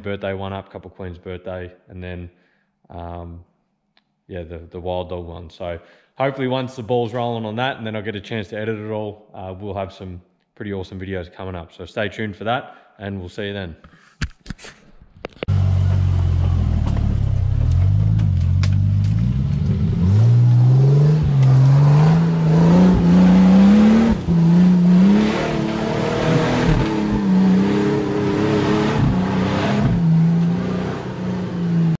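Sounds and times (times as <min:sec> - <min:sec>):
truck engine revving hard: 0:19.0 - 0:32.0.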